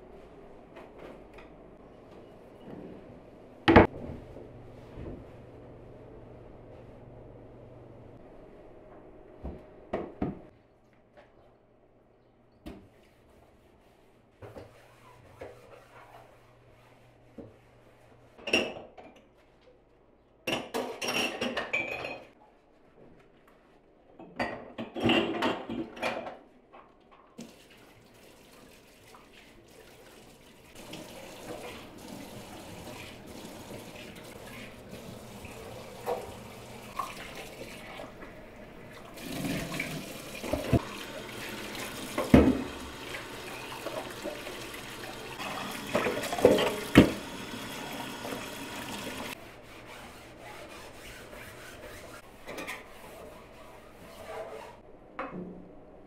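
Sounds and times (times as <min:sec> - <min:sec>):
dish scrubbing: 0:12.9 - 0:18.8, 0:27.4 - 0:54.8
tap running: 0:30.8 - 0:37.5, 0:38.2 - 0:49.4.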